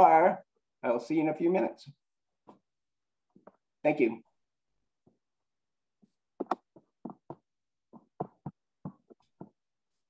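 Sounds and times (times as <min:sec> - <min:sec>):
quiet taps and knocks: 0:06.4 - 0:09.6.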